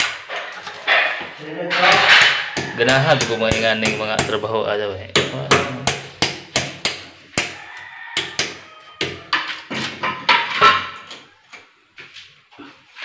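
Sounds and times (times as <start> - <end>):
hammer knocking on concrete: 1.7 - 4.5.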